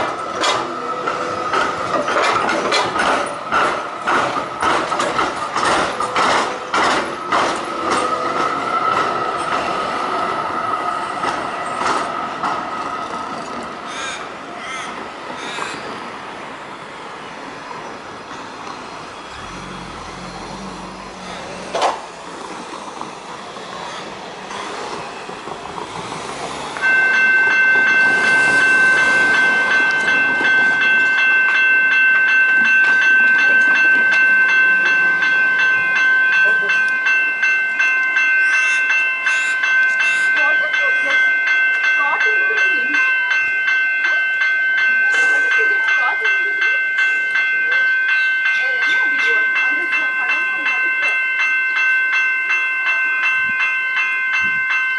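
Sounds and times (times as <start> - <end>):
wheels clicking over rail crossing: 0.0 - 16.2, 16.9 - 54.9
tram wheels squealing: 0.0 - 37.2
level crossing warning bells: 0.0 - 54.9
passing car traffic: 2.9 - 52.8.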